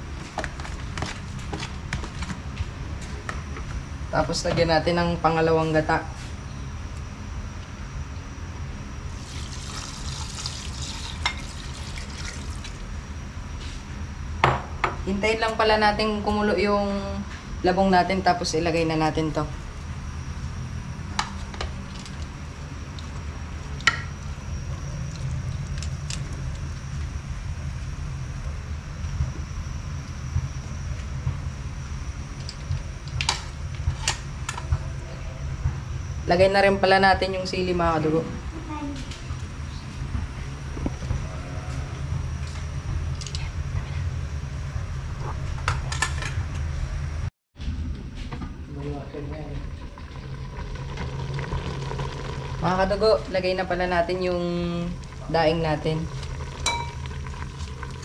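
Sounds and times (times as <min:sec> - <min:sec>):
steady low rumble: 0:15.0 - 0:58.0.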